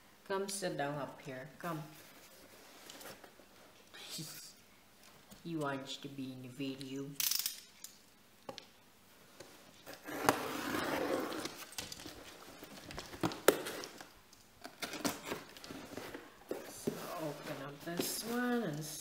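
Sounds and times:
cardboard package rustling: 0:09.8 - 0:19.0.

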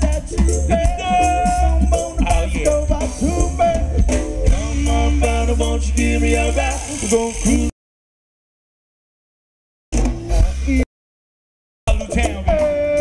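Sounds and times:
heavy electric bass: 0:00.0 - 0:07.7, 0:09.9 - 0:10.8
keyboard: 0:00.0 - 0:07.7, 0:11.9 - 0:13.0
man singing: 0:00.0 - 0:07.7, 0:11.9 - 0:13.0.

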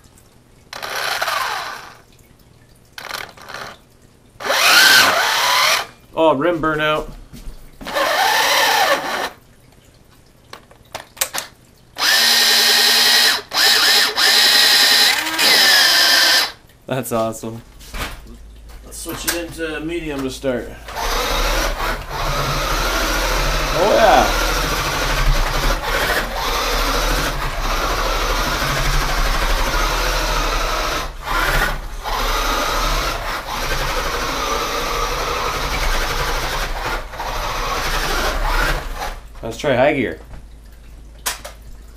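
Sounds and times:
electric motor whining: 0:00.8 - 0:02.0, 0:04.4 - 0:05.9, 0:07.9 - 0:09.4, 0:12.0 - 0:16.6, 0:20.9 - 0:39.2.

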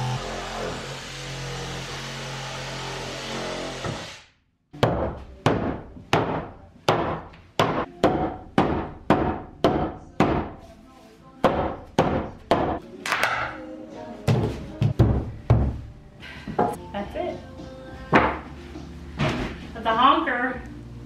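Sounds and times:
hammer striking wooden wall: 0:04.8 - 0:10.6.

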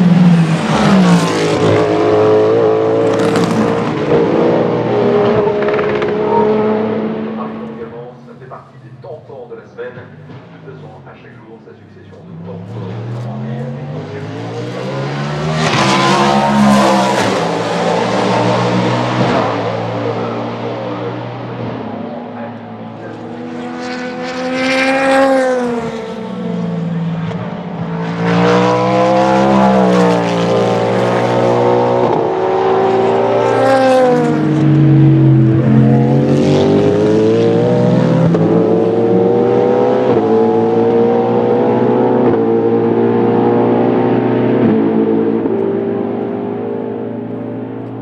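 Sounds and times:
race car engines passing: 0:00.0 - 0:48.0.

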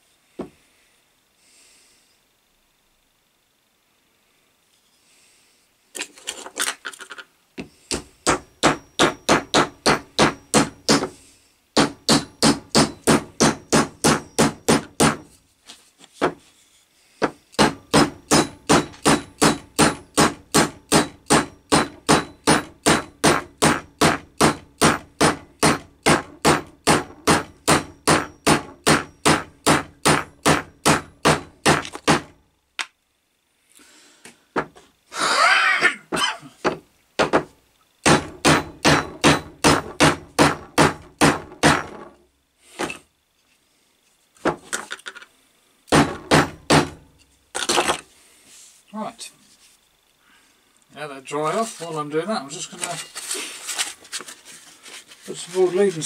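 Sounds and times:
hammer striking wooden handle: 0:07.9 - 0:11.2, 0:11.8 - 0:15.3, 0:17.2 - 0:32.3, 0:38.1 - 0:42.1, 0:45.9 - 0:47.0.

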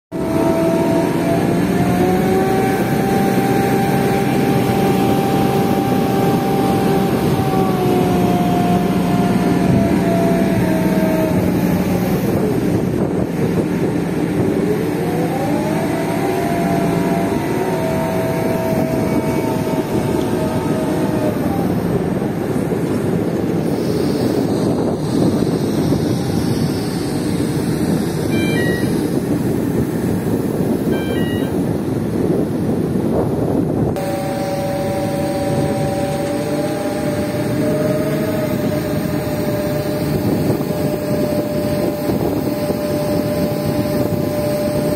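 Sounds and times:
crane diesel engine running: 0:00.1 - 0:44.9
steady rushing noise: 0:00.1 - 0:44.9.

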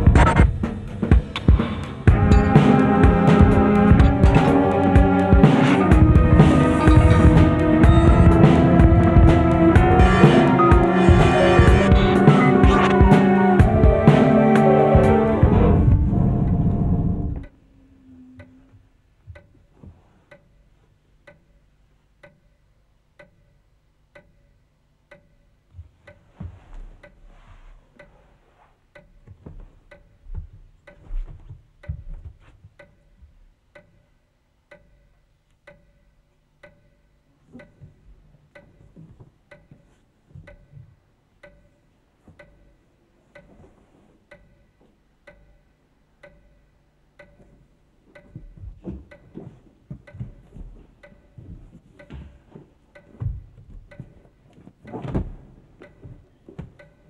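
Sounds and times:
clock ticking: 0:00.0 - 0:57.0
low thuds: 0:15.0 - 0:17.5, 0:54.9 - 0:56.8.

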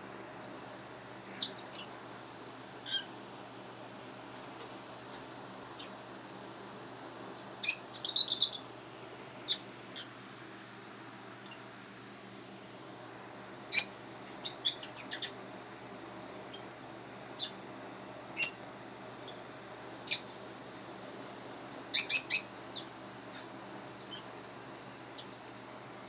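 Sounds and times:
low steady hum: 0:00.0 - 0:26.0
high bird chirps: 0:07.6 - 0:08.6, 0:09.5 - 0:10.1, 0:13.7 - 0:15.3, 0:18.4 - 0:18.6, 0:22.0 - 0:22.9.

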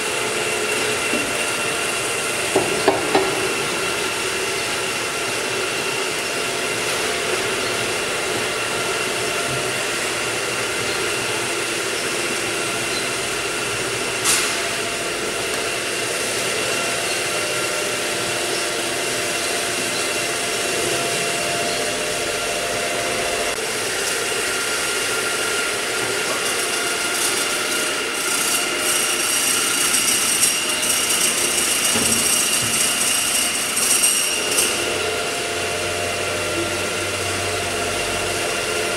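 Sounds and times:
electric motor hum and whine: 0:00.0 - 0:38.9.

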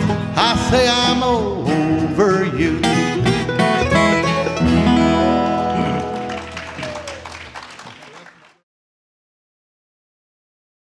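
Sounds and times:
bluegrass band playing: 0:00.0 - 0:07.9.

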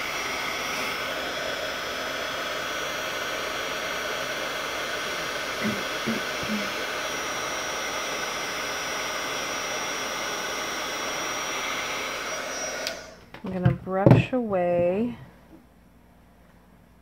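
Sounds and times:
heat gun blowing: 0:00.0 - 0:13.4.

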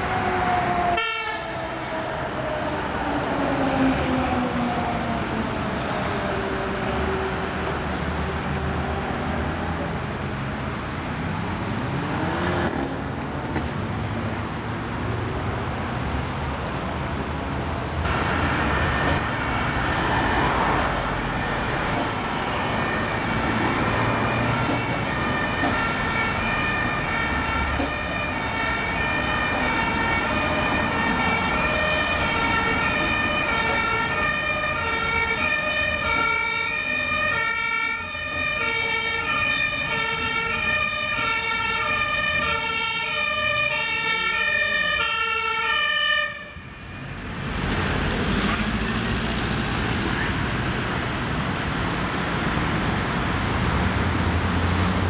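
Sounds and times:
two-tone emergency sirens: 0:00.0 - 0:08.1, 0:18.0 - 0:52.0
road traffic noise: 0:00.0 - 0:55.0.

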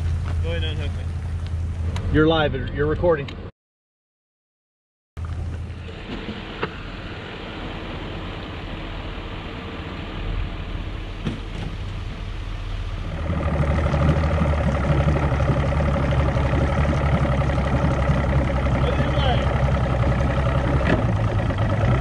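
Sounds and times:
outboard motor idling: 0:00.0 - 0:02.0, 0:05.2 - 0:22.0
distant truck engine running: 0:05.2 - 0:22.0.

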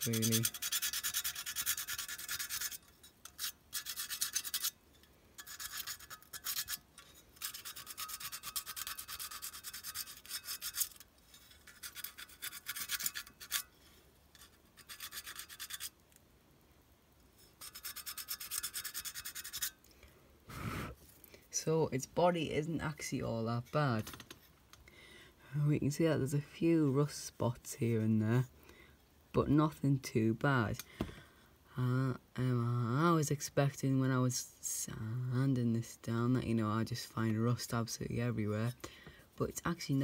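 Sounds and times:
sandpaper scratching on metal: 0:00.0 - 0:04.8, 0:05.4 - 0:06.8, 0:07.4 - 0:11.0, 0:11.6 - 0:13.7, 0:14.4 - 0:15.9, 0:17.6 - 0:19.8.

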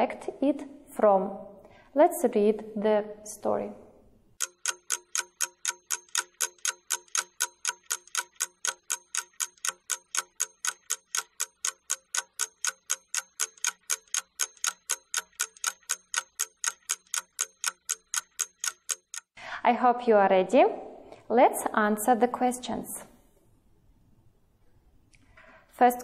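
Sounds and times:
fast clock ticking: 0:04.4 - 0:19.4.

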